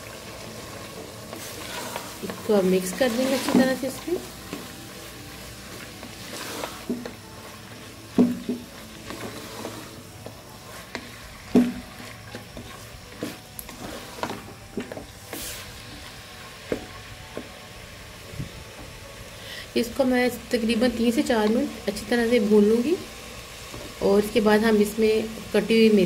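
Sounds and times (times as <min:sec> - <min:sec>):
soft frying sizzle: 0:00.0 - 0:26.0
wooden spatula scraping metal pot: 0:01.3 - 0:04.7, 0:05.6 - 0:15.8.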